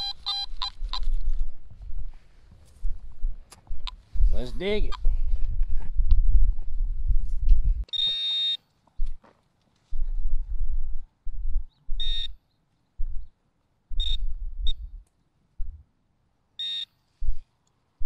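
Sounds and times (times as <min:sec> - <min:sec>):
metal detector beeps: 0:00.0 - 0:01.1, 0:07.9 - 0:08.6, 0:12.0 - 0:12.4, 0:14.0 - 0:14.8, 0:16.6 - 0:17.0.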